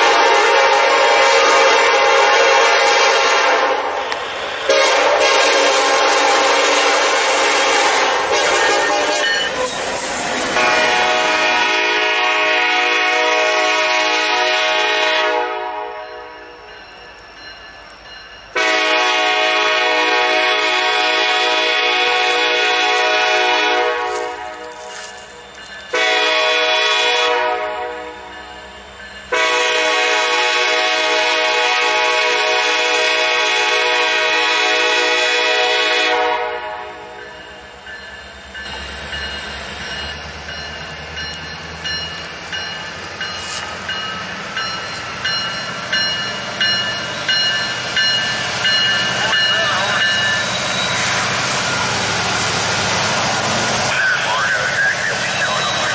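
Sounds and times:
locomotive horn blasts: 0:00.0 - 0:04.0, 0:04.7 - 0:09.4, 0:10.5 - 0:16.4, 0:18.6 - 0:25.3, 0:25.9 - 0:28.3, 0:29.3 - 0:37.2
train wheels clacking over rails: 0:02.7 - 0:11.9, 0:37.2 - 0:55.9.

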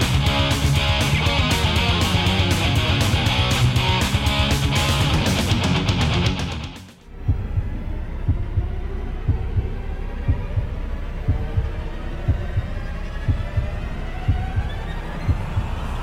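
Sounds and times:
low hum: 0:00.0 - 0:16.0
heartbeat double thumps: 0:07.1 - 0:15.9.

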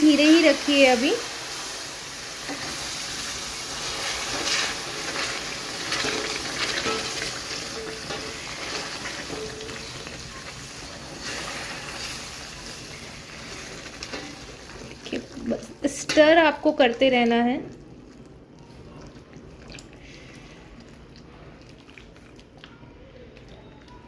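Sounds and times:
syrup sizzling in a pan: 0:00.0 - 0:16.0
spoon stirring and scraping: 0:04.3 - 0:10.2.

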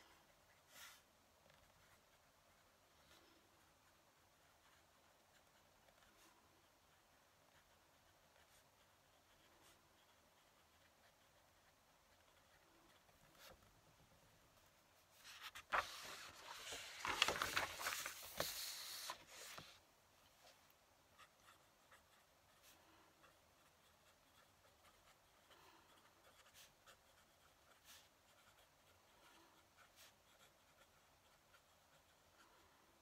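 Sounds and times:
fountain pen scratching on paper: 0:00.5 - 0:13.6, 0:21.1 - 0:32.7
paper rustling: 0:15.1 - 0:19.8.

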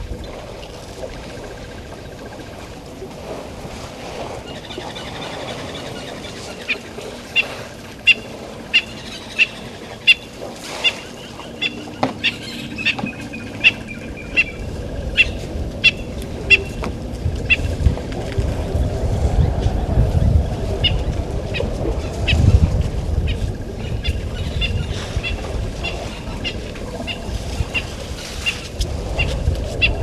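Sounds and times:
low rumble: 0:11.4 - 0:30.0.

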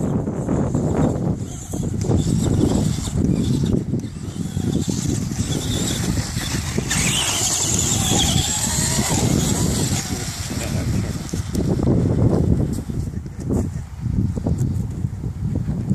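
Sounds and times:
toy truck electric motor whining: 0:00.7 - 0:12.1.

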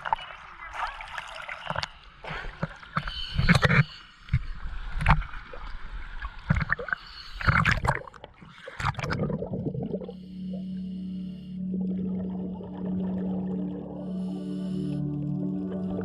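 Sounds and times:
water sloshing against camera: 0:00.0 - 0:10.0
muffled underwater sound: 0:00.0 - 0:16.0
steady low tone: 0:09.4 - 0:16.0.

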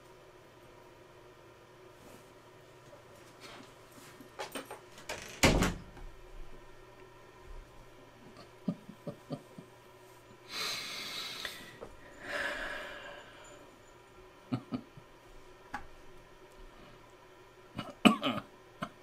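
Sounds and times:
man breathing heavily: 0:10.5 - 0:13.7.

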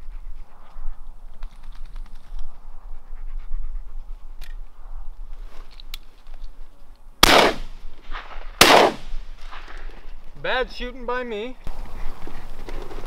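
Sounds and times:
dog panting: 0:00.0 - 0:04.4
shotgun blast: 0:07.2 - 0:09.2.

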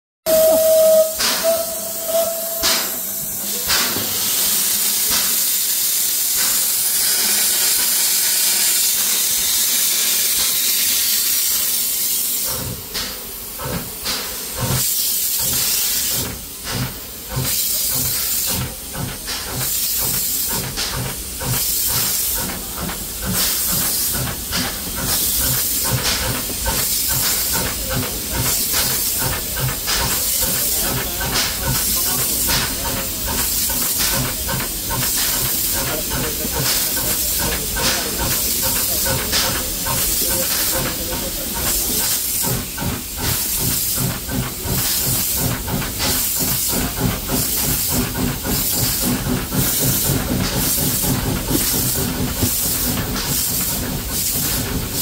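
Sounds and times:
steam locomotive whistle: 0:00.2 - 0:03.8
locomotive exhaust beats: 0:00.3 - 0:04.2, 0:15.4 - 0:55.0
steam hissing: 0:00.3 - 0:55.0.

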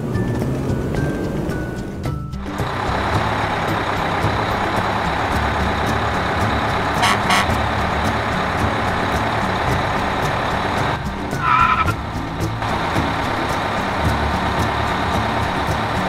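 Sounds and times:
truck engine running: 0:00.0 - 0:16.0.

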